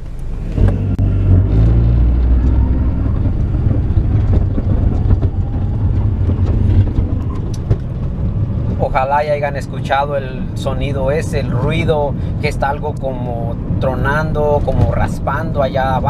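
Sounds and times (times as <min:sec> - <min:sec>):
cracking and scraping from underneath: 0:00.0 - 0:09.7
loud low drivetrain rumble: 0:00.0 - 0:16.0.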